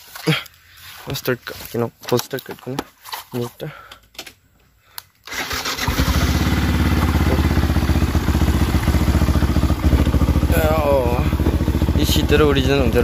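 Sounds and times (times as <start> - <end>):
motorcycle engine idling: 5.8 - 13.0.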